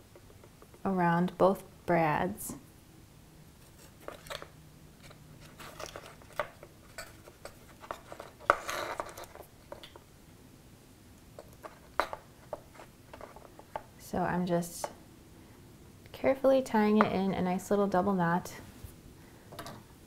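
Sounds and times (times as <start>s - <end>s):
twine and cardstock rustling: 3.6s - 9.8s.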